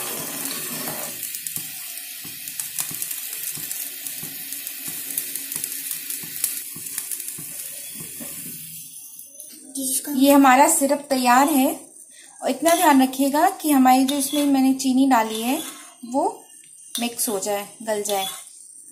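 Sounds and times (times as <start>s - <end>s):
syrup bubbling in a saucepan: 0.0s - 8.9s.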